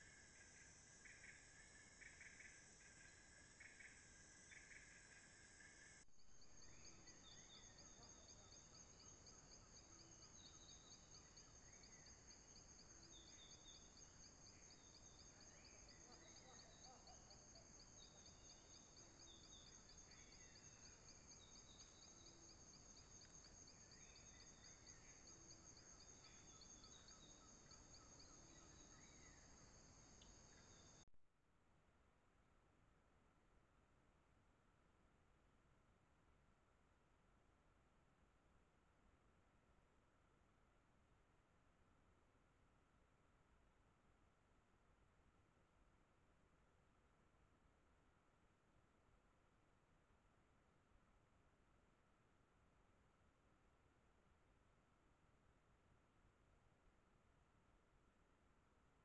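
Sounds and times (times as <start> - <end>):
insects trilling: 0.0 - 31.0.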